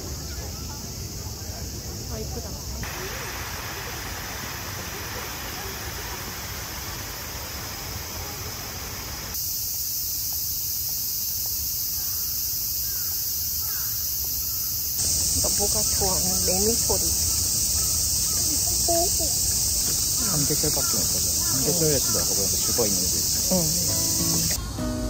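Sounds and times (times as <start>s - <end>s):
cicadas chorus: 0.0s - 25.0s.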